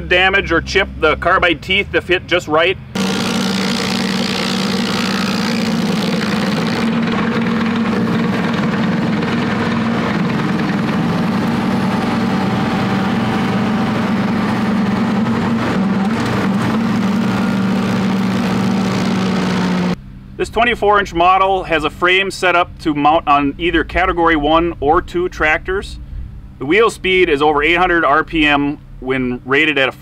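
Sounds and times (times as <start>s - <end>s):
stump grinder grinding wood: 3.0s - 20.0s
tractor engine under load: 3.0s - 20.0s.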